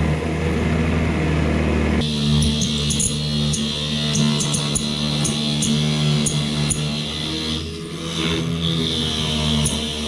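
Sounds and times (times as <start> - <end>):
lathe motor running: 2.0 - 10.0.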